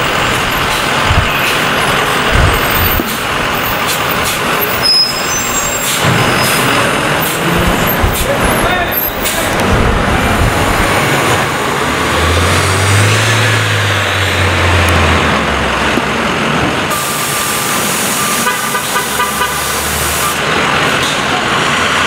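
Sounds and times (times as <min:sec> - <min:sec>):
bus engine drone: 0:00.0 - 0:22.0
loud hissing rush: 0:16.9 - 0:20.4.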